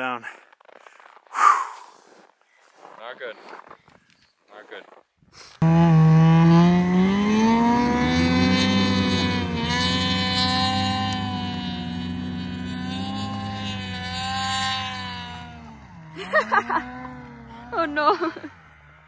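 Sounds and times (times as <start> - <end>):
snowmobile engine running: 5.6 - 19.0.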